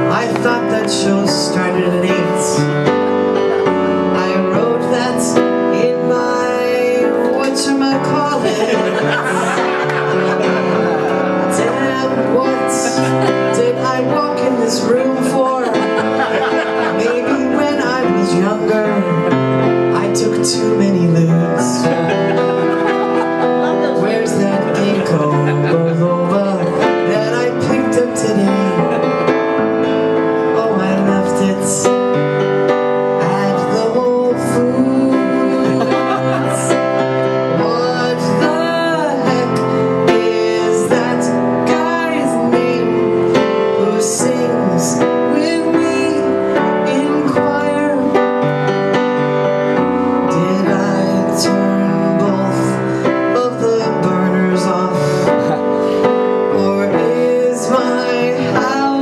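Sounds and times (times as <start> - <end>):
woman singing: 0.0 - 2.8, 4.2 - 9.6, 11.4 - 16.1, 16.8 - 22.4, 23.6 - 29.1, 30.6 - 32.0, 33.2 - 36.9, 37.6 - 43.1, 43.7 - 48.2, 56.5 - 59.0
piano playing: 0.0 - 59.0.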